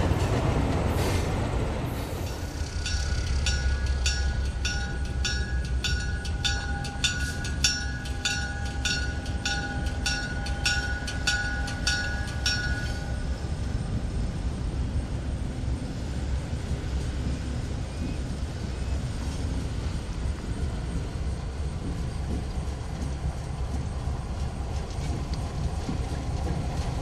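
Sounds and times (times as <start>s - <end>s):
locomotive engine rumble: 0.0s - 27.0s
locomotive bell ringing: 2.2s - 13.7s.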